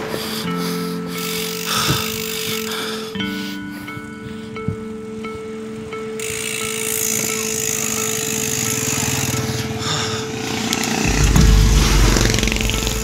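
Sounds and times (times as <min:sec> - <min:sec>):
bicycle rattling over rough trail: 0:01.2 - 0:03.0, 0:06.2 - 0:13.0.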